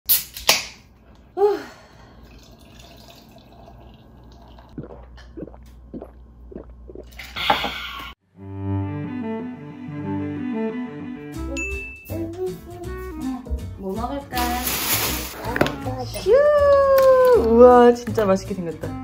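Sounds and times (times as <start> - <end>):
can snapped open with hiss: 0.1 - 0.8
beer pouring and fizzing: 2.2 - 7.4.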